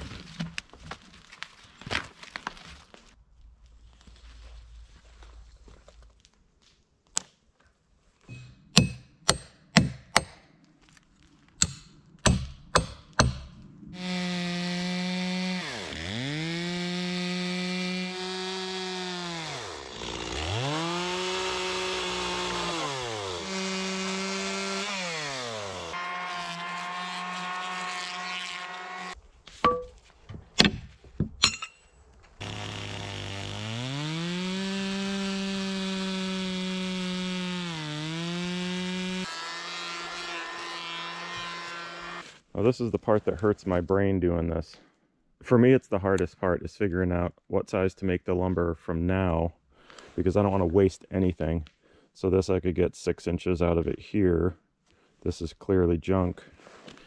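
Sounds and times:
sharp knocks: 11.6 - 13.6
chainsaw cutting log: 11.6 - 29.2, 32.4 - 42.4.

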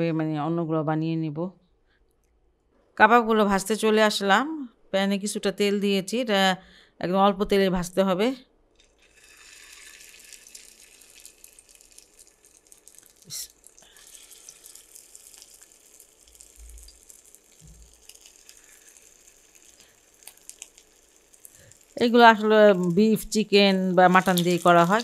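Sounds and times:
food sizzling in oil: 9.0 - 25.0.

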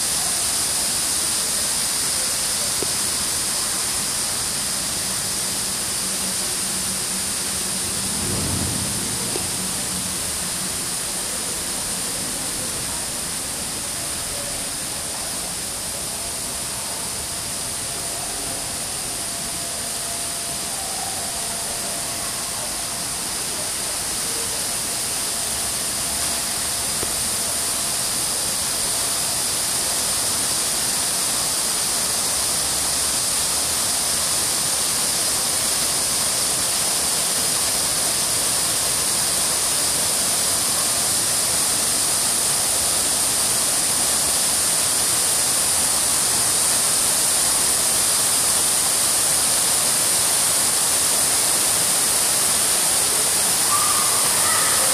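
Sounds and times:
water rushing down stone cascade: 0.0 - 54.9.

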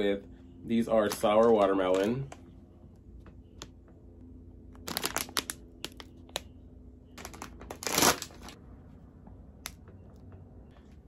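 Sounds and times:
plastic bag crinkling: 4.8 - 6.2, 7.2 - 8.6.

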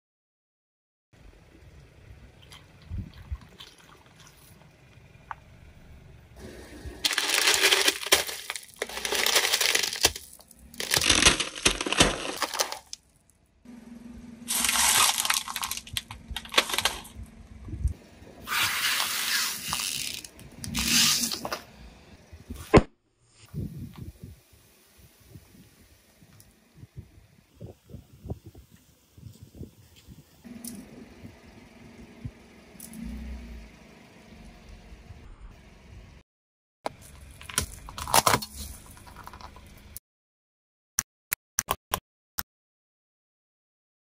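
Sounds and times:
tyre crushing brittle objects: 7.0 - 13.2, 14.5 - 17.2, 18.5 - 21.6, 36.9 - 39.7.

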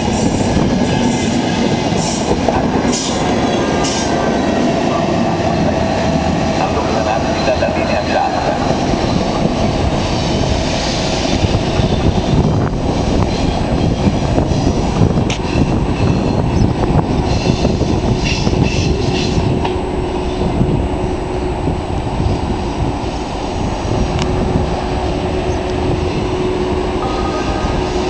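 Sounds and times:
train rail rumble: 0.0 - 28.0
high-pitched squeal: 25.0 - 28.0.

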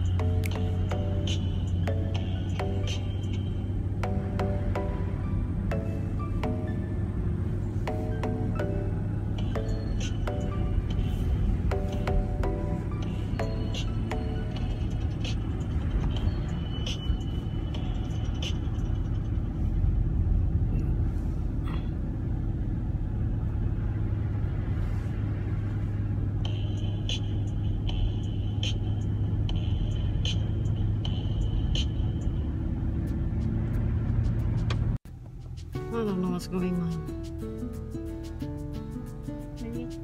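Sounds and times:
car road noise on wet pavement: 9.2 - 36.7.

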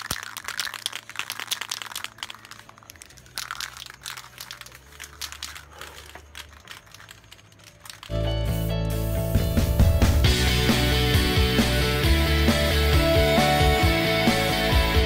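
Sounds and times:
spray can ball rattling: 0.0 - 8.2.

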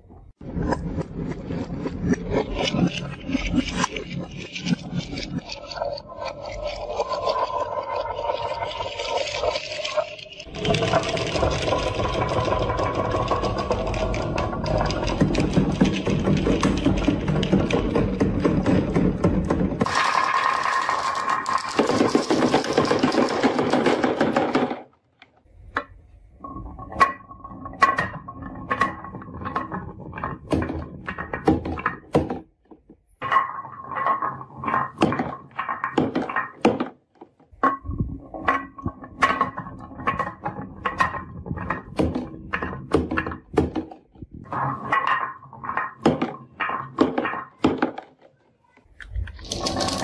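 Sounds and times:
glass marbles rattling on wood: 2.6 - 24.6, 49.1 - 50.0.

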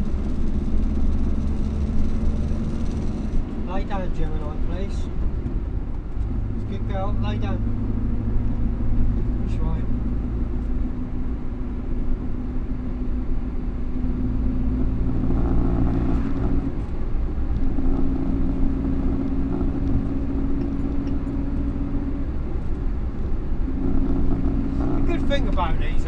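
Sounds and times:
car engine running: 0.0 - 26.0
road noise: 0.0 - 26.0.

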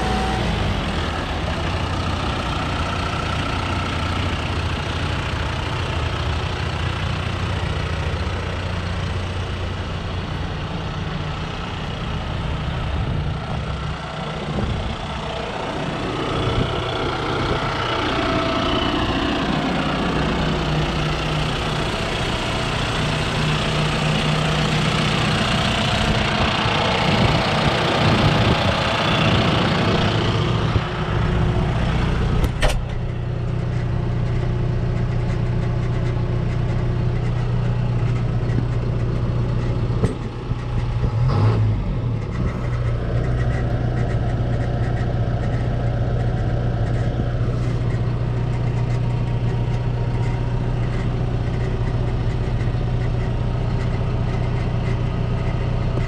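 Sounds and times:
tractor diesel engine running: 0.0 - 56.0
sharp click: 32.4 - 33.1.

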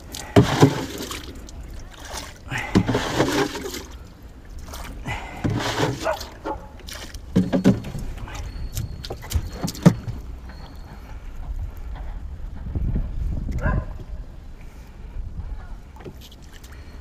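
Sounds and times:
water splashing overboard: 0.0 - 10.2
jug scooping and scraping water: 0.0 - 11.2.

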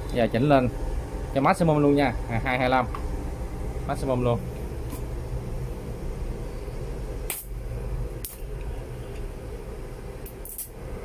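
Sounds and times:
steady low hum: 0.0 - 11.0
sharp electrode clicks: 7.3 - 7.6.

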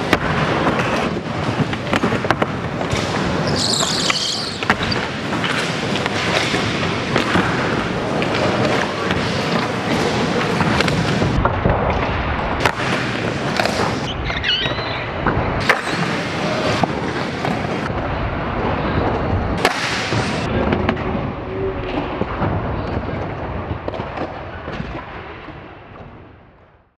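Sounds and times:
skateboard wheels rolling: 0.0 - 21.0.

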